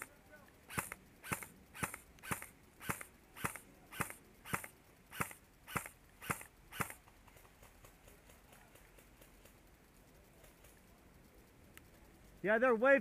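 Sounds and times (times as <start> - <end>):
airsoft rifle shots: 0.7 - 7.1.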